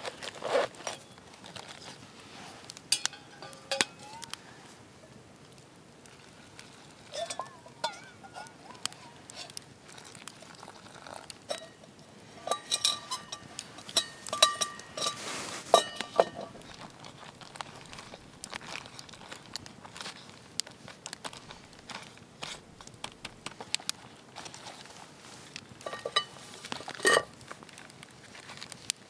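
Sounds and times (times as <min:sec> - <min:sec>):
metal camp pot clinking: 0:00.4 - 0:02.0, 0:02.6 - 0:27.4.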